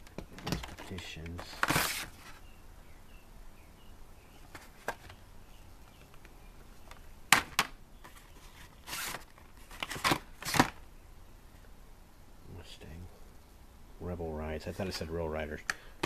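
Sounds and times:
cards rustling and clacking in tub: 0.2 - 2.4.

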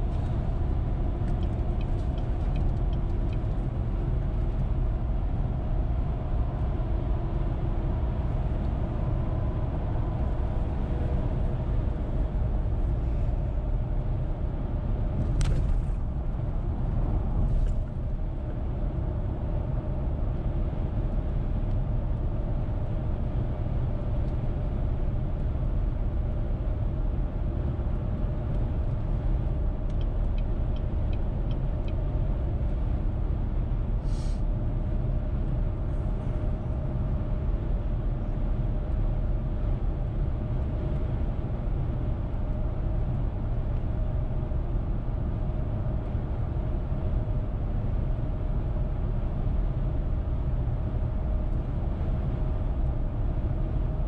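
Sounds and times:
car tyres and engine rumble: 0.0 - 54.0
light ticks: 1.2 - 3.6, 29.9 - 32.0
brief hiss: 34.0 - 34.4.

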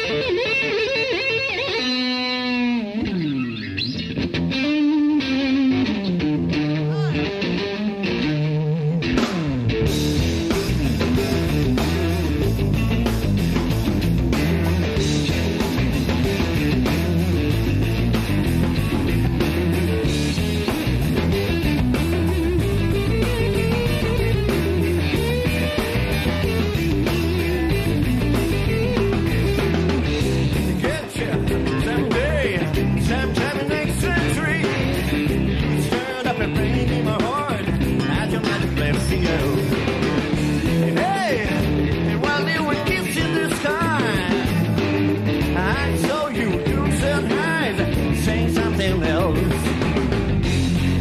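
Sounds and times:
electric blues-rock band: 0.0 - 51.0.

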